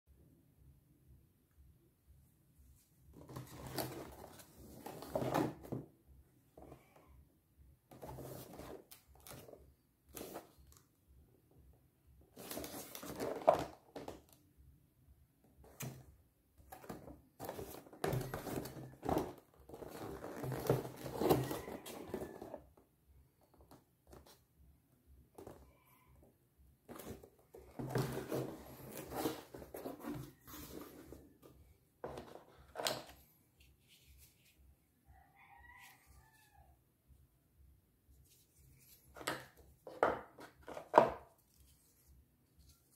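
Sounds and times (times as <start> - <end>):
cardboard box rustling and scraping: 16.8 - 22.6, 26.9 - 31.4.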